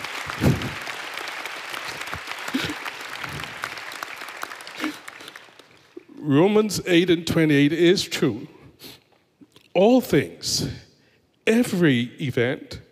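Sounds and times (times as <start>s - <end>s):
crowd applauding: 0.0s - 6.0s.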